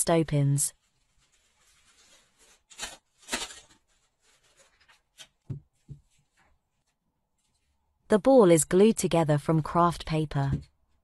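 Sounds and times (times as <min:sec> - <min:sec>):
plastic bag rustling and crinkling: 0:00.7 - 0:07.7.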